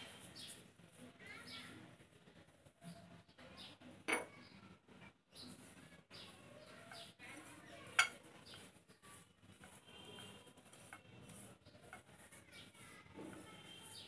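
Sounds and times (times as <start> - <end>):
clinks against ceramic bowl: 8.0 - 8.2
hand rubbing flour in a bowl: 8.5 - 14.0.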